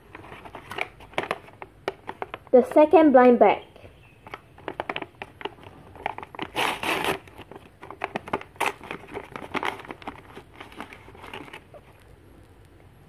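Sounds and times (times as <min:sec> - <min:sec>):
paper crinkling and tearing: 0:04.6 - 0:12.1.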